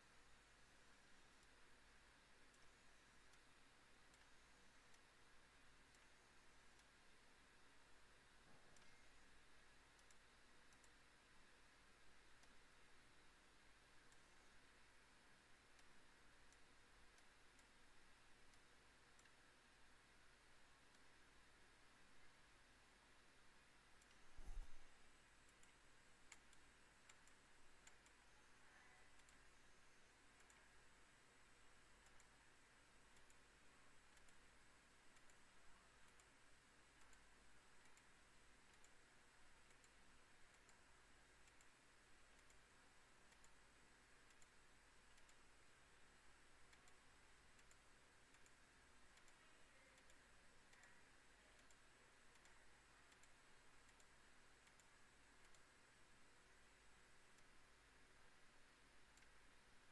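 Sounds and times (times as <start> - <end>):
faint steady hiss: 0.0 - 59.9
faint ticks: 0.0 - 59.9.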